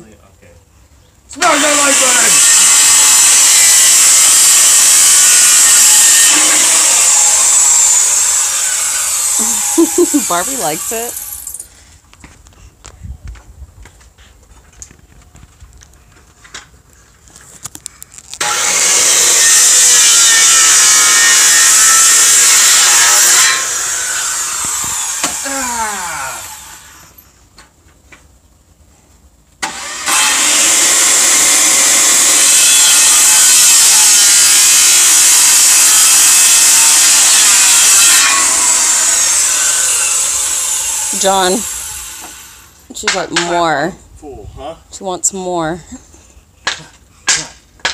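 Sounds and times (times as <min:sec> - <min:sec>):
circular saw cutting wood: 0:01.4 - 0:11.6, 0:18.4 - 0:27.2, 0:29.6 - 0:43.6
saw motor winding down: 0:01.4 - 0:11.6, 0:18.4 - 0:27.2, 0:29.6 - 0:42.8.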